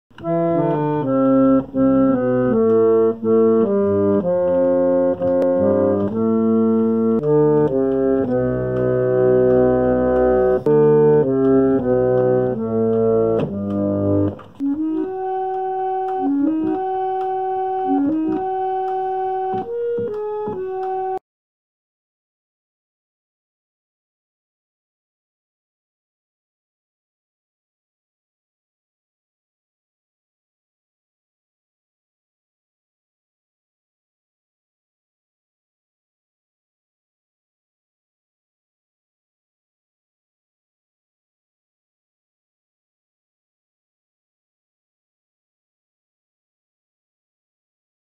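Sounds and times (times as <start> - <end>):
organ higher melody: 0.1 - 21.2
pump organ chords: 0.1 - 21.2.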